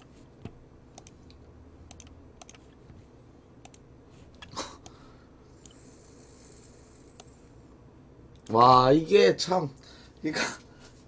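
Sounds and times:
keyboard and mouse clicks: 0.0 - 2.8, 3.6 - 5.0.

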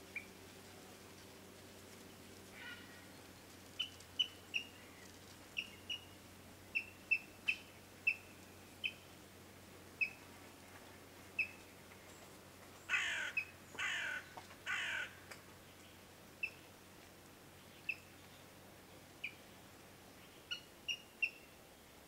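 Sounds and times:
raspy bird calls: 12.9 - 15.2.

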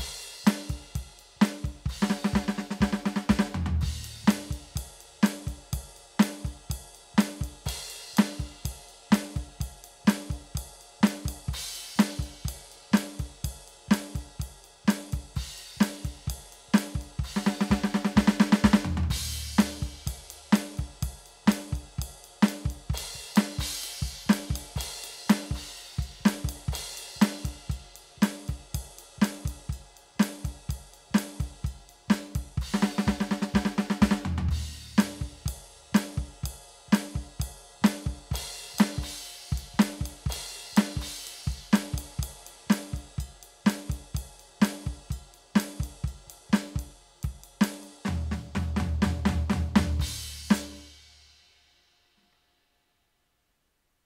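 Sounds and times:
electronic drum kit groove: 0.0 - 50.9
rapid drum fills: 0.0 - 51.0.

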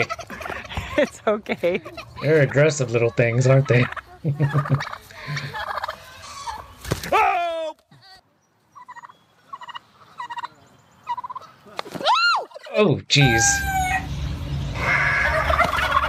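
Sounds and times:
turkey gobbling: 0.0 - 1.0, 1.8 - 7.1, 8.8 - 14.1, 14.7 - 16.0
short turkey calls: 8.8 - 11.8.

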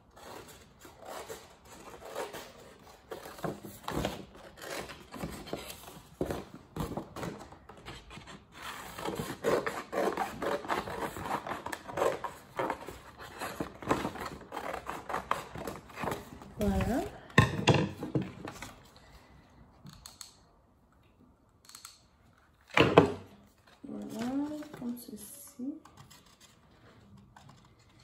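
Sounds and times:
paper rustling: 23.4 - 25.2.

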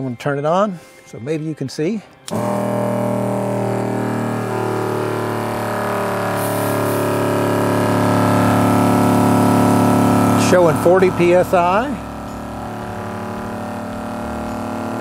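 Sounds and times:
electric pump humming: 2.2 - 15.0.

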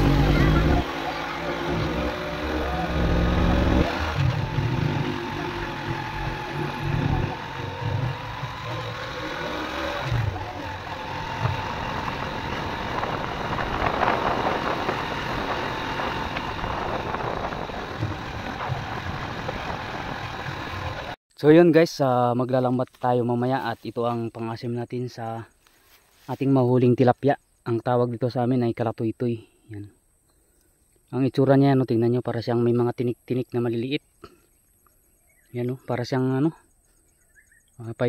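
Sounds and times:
low rumble on gravel road: 0.0 - 21.2
small motorcycle engine running: 0.0 - 21.2.

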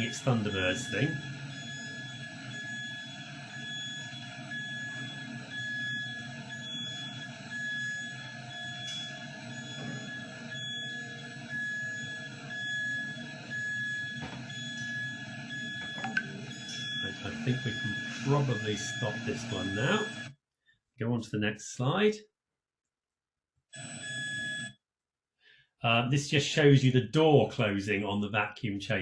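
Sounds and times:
high-pitched warning tone: 0.0 - 20.3
low machinery drone: 0.0 - 20.3.

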